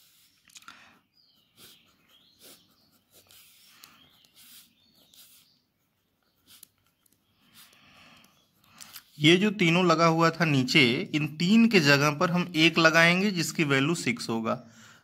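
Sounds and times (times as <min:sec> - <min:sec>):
pen scratching on paper: 0:00.0 - 0:00.4, 0:01.1 - 0:10.0.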